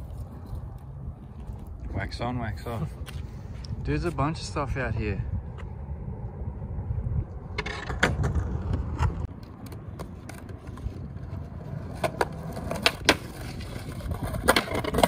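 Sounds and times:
skateboard wheels rumbling on concrete: 0:05.4 - 0:15.0
skateboard clacks: 0:07.6 - 0:15.0.

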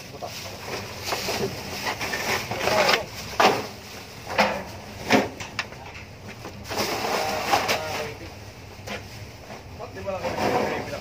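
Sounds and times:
plastic garbage bags rustling: 0:00.0 - 0:05.4, 0:06.6 - 0:08.2.

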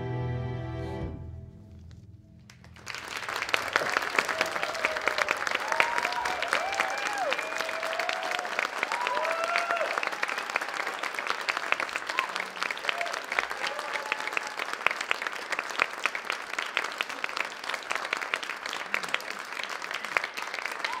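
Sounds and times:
audience applauding: 0:02.4 - 0:21.0
people whooping: 0:03.8 - 0:11.1, 0:12.0 - 0:14.8, 0:20.7 - 0:21.0.

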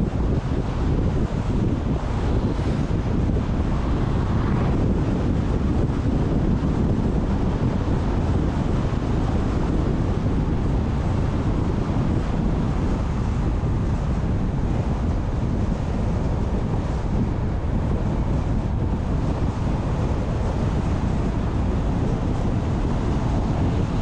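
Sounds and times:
car road noise rumble: 0:00.0 - 0:24.0
wind buffeting microphone: 0:00.0 - 0:24.0.

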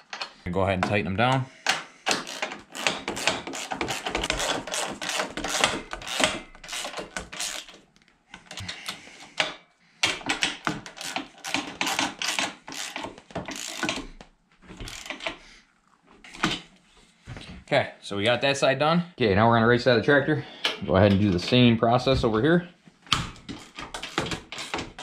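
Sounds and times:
ratchet clicking: 0:01.7 - 0:07.8, 0:10.8 - 0:14.1, 0:14.8 - 0:15.4.

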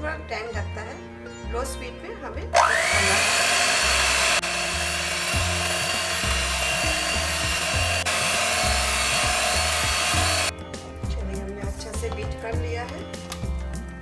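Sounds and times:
beaters whipping cream in bowl: 0:02.6 - 0:10.5
electric hand mixer whine: 0:02.6 - 0:10.5.

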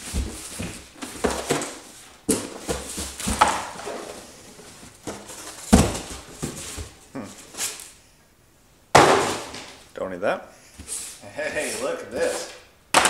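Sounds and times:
cardboard flaps rustling: 0:00.0 - 0:07.8.

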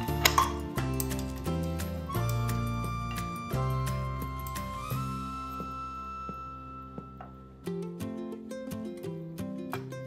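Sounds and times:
instrumental music with held notes: 0:00.0 - 0:10.0.

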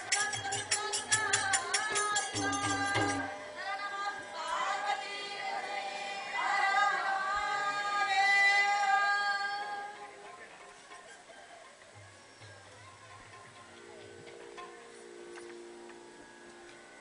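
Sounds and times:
quick percussion beat: 0:00.0 - 0:03.4
music with singing voices: 0:00.0 - 0:17.0.

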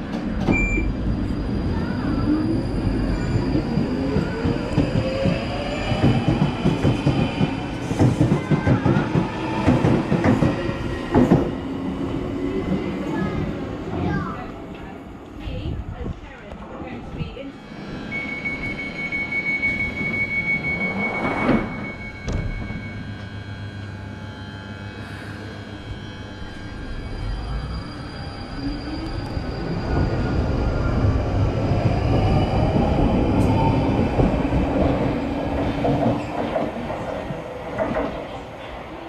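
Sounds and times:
train doors shutting: 0:00.0 - 0:02.2, 0:02.8 - 0:14.9, 0:17.7 - 0:23.8, 0:25.8 - 0:39.0
train wheels rumbling: 0:00.0 - 0:17.4, 0:25.8 - 0:38.7
traction motors whining: 0:17.7 - 0:38.1
high warning tone: 0:17.8 - 0:30.7.

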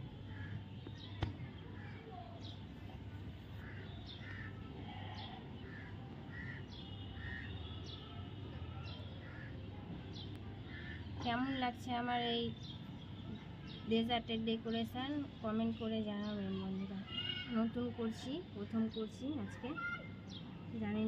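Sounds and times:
small birds chirping: 0:00.2 - 0:21.0.

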